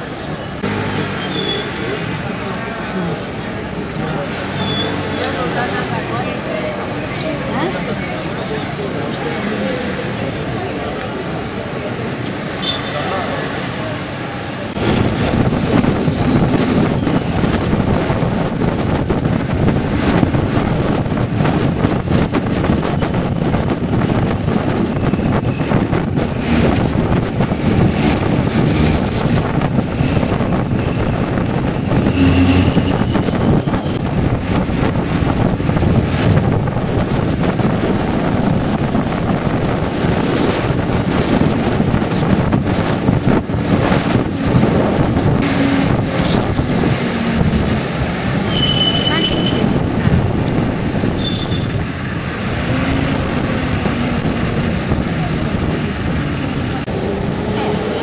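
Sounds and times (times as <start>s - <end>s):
bus running noise: 0.0s - 58.0s
wind buffeting microphone: 14.7s - 58.0s.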